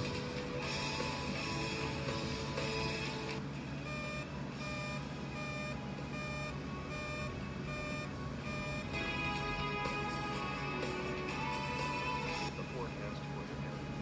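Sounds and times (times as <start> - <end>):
background music: 0.0 - 14.0
high-low electronic alert beeps: 3.8 - 9.0.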